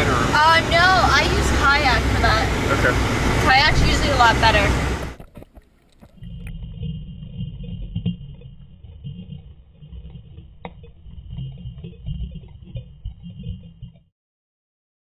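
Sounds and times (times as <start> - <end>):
underwater rumbling and sloshing: 3.3 - 14.1.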